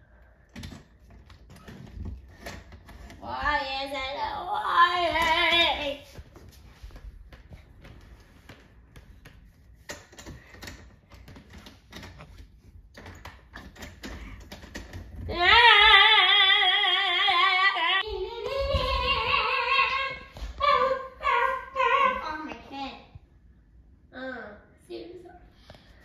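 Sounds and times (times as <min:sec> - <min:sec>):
child singing: 0:03.3 - 0:06.0, 0:15.3 - 0:23.0.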